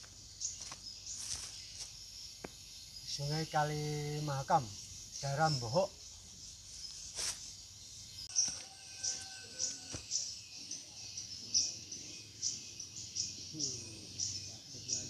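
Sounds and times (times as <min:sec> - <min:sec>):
high-pitched wildlife chirping: 0:00.0 - 0:15.0.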